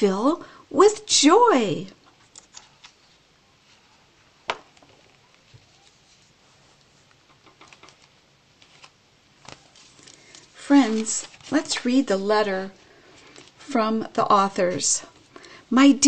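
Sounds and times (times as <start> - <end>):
book page rustling: 2.1 - 13.6.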